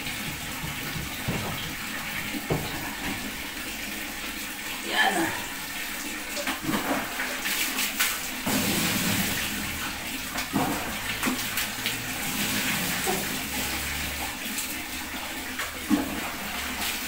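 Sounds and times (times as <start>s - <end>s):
water splashing and pouring: 0.0s - 17.0s
plastic knocks: 0.2s - 3.2s.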